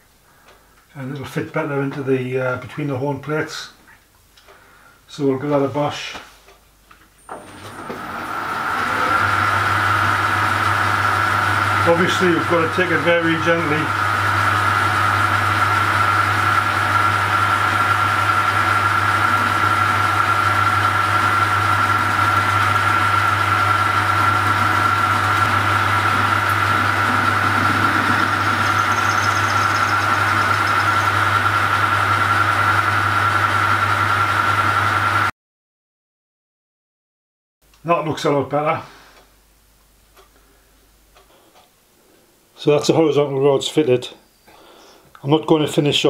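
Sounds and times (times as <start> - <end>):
metal lathe motor hum and whine: 7.3 - 35.3.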